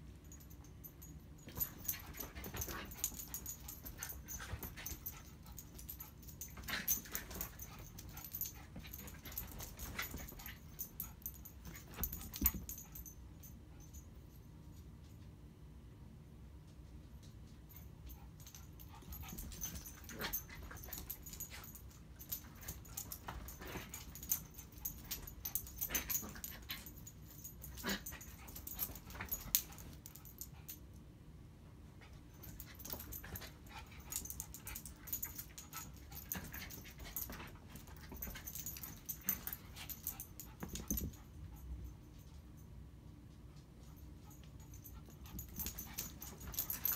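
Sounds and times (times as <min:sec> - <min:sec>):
small dogs playing: 0:01.4 - 0:13.1, 0:18.2 - 0:30.8, 0:32.0 - 0:41.7, 0:44.3 - 0:46.9.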